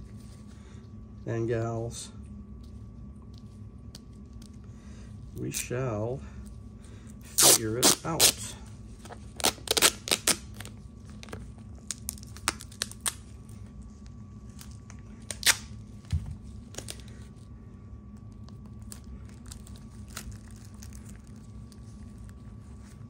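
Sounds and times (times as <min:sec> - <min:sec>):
steady low hum: 0:00.0 - 0:23.0
crinkly tearing: 0:07.2 - 0:23.0.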